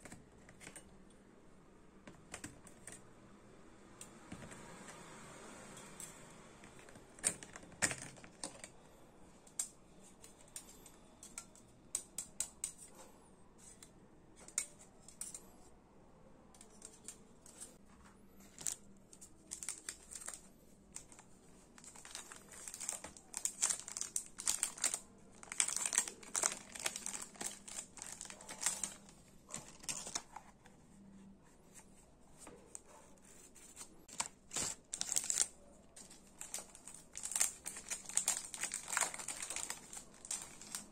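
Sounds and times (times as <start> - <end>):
packaging rustling and tearing: 18.5 - 30.4, 33.6 - 40.9.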